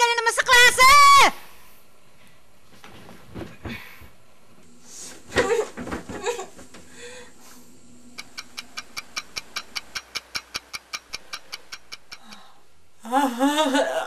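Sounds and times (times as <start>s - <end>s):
clock ticking fast: 8.2s - 12.5s.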